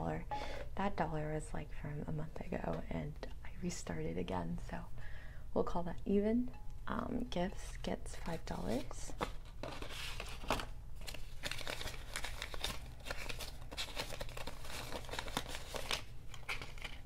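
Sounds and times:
banknotes and envelope rustling: 8.2 - 17.0.

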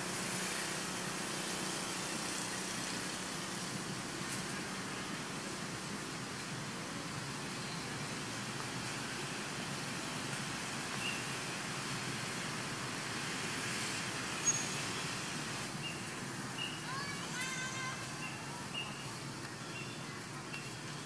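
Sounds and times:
outdoor hiss: 0.0 - 21.0
faint high chirps: 15.8 - 16.9.

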